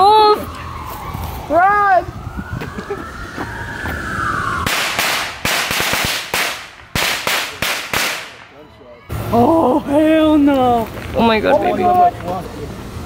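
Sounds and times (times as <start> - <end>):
firework whistling: 2.8 - 8.5
firework bangs: 4.5 - 8.6.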